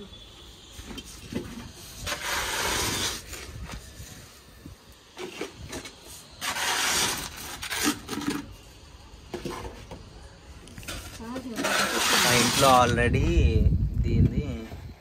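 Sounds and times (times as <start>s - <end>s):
rubbing and scraping: 0.7s - 4.3s, 5.1s - 8.7s, 10.8s - 13.4s.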